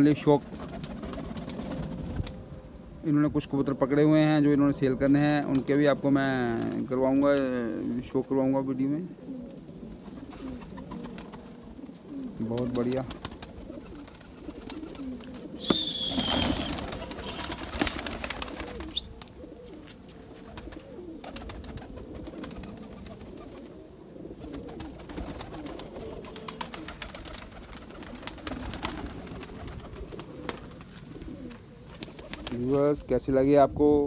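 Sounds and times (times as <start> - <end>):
rustling flurry of wings: 0.0 - 2.6, 4.9 - 8.2, 9.2 - 33.0
pigeons cooing: 0.0 - 34.0
pigeons pecking at feed: 12.2 - 32.6.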